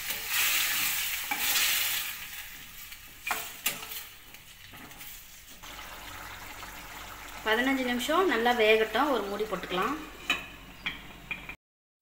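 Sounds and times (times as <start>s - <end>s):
steel spoon scraping pan: 0.0s - 5.6s
chicken sizzling in hot oil: 0.0s - 11.4s.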